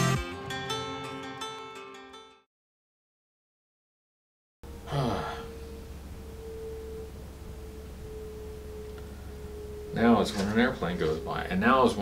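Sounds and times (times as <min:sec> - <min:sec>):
airplane droning overhead: 0:04.6 - 0:12.0
low room hum: 0:04.6 - 0:12.0
short falling vocal sound: 0:04.8 - 0:05.5.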